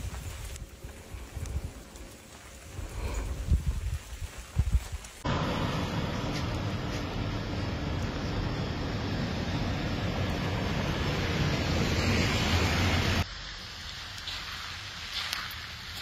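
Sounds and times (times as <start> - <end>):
heavy vehicle engines rumbling: 5.2 - 13.2.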